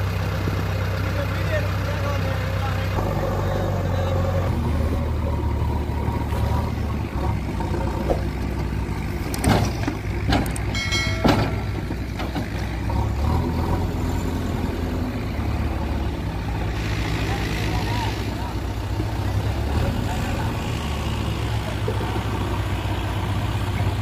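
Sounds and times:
diesel engine droning: 0.0 - 24.0
metal bucket clanks: 9.4 - 12.4.

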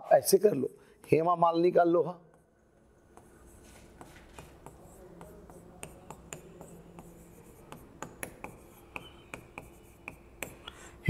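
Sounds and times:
chalk tapping and scratching on board: 2.3 - 10.8.

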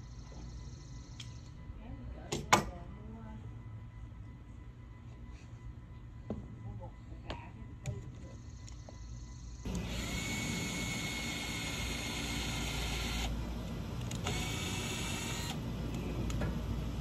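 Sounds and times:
power drill motor whine: 8.4 - 16.4.

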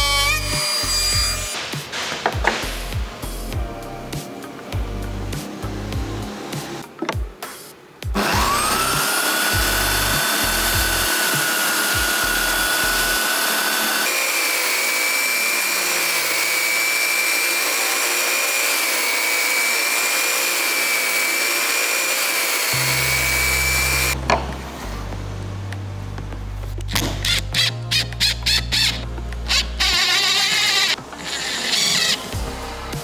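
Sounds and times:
power tool motor whine: 8.2 - 24.2, 28.8 - 32.3.

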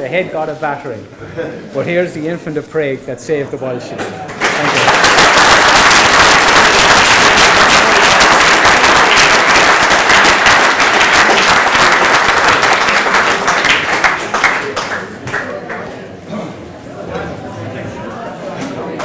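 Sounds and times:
audience applauding: 4.3 - 15.9.

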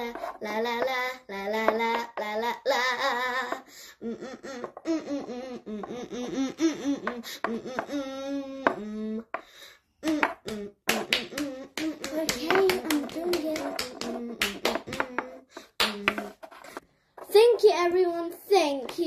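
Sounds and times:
person sing-song vocalizing: 0.0 - 9.4, 10.0 - 16.3
hand claps: 10.0 - 16.2.

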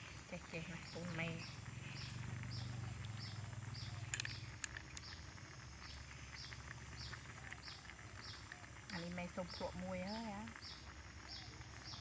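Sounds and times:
snail shells clicking in plastic bowl: 0.5 - 9.6.

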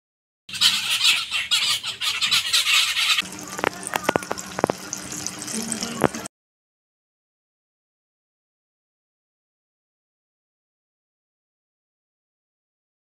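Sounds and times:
many birds chirping: 0.5 - 3.2
fritters sizzling in hot oil: 3.2 - 6.3.

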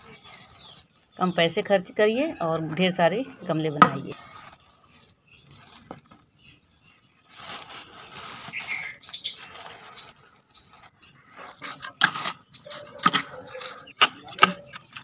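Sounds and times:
trowel scraping cement mix: 11.2 - 15.0.

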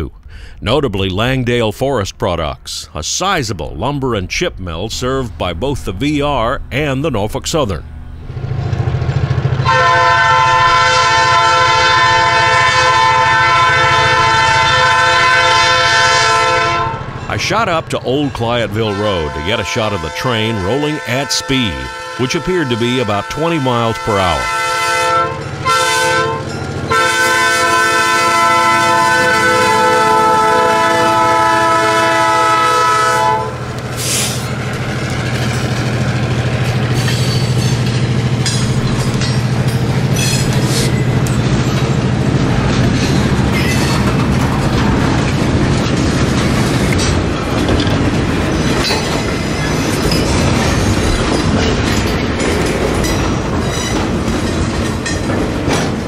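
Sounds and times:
diesel locomotive engine: 0.0 - 56.0
locomotive horn chord: 7.7 - 17.2, 18.5 - 34.6
train wheels clattering on rails: 33.6 - 56.0.

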